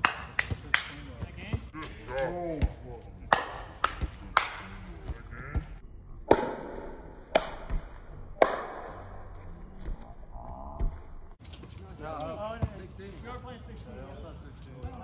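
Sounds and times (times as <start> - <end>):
basketball bouncing on asphalt: 6.6 - 8.2, 12.4 - 13.0.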